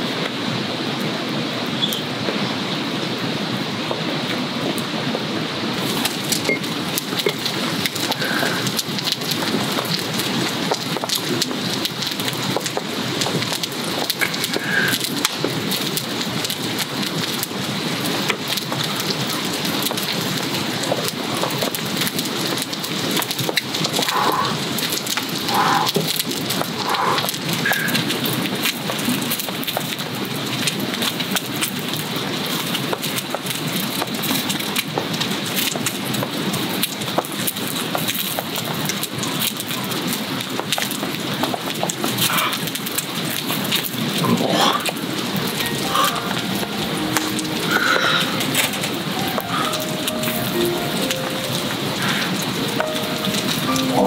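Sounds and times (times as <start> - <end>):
steady rain falling: 0.0 - 54.0
faint short high notes: 45.6 - 54.0.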